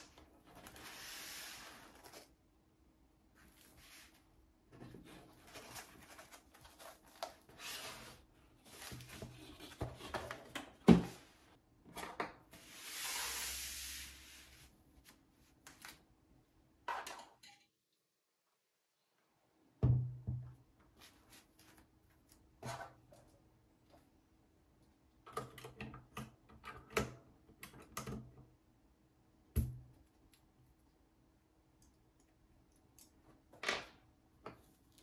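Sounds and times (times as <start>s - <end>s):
long sliding scrape: 0.7s - 2.0s, 12.6s - 14.7s.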